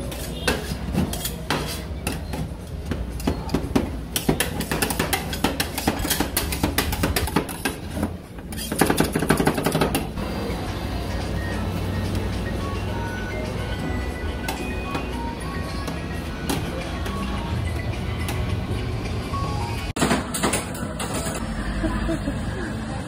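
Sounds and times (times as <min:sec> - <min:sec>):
metal spatulas tapping and scraping: 0:00.0 - 0:10.2.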